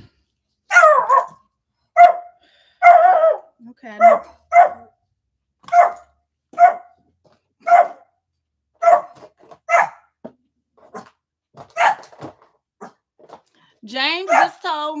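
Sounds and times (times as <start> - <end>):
dog barking: 0.7 - 5.0, 5.6 - 7.0, 7.6 - 8.1, 8.8 - 10.2, 11.7 - 12.2, 14.2 - 14.6.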